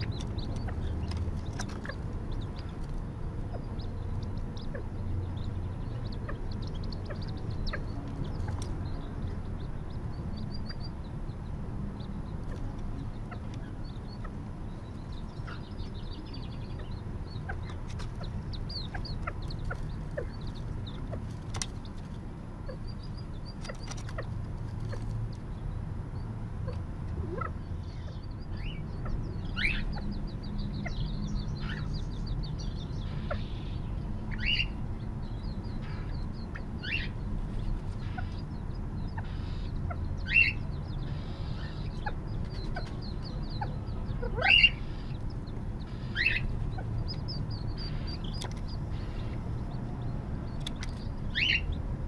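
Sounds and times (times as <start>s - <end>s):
low background rumble: 0.0s - 52.0s
quail chicks peeping: 0.0s - 52.0s
falling bird calls: 35.7s - 49.8s, 50.5s - 51.8s.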